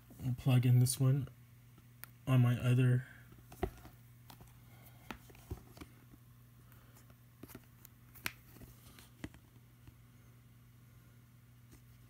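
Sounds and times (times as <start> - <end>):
low steady hum: 0.0 - 12.0
faint clicks and taps: 7.0 - 10.0.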